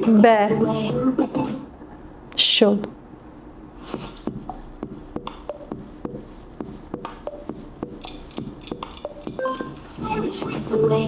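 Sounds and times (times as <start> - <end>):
timer ticking: 4.4 - 9.8.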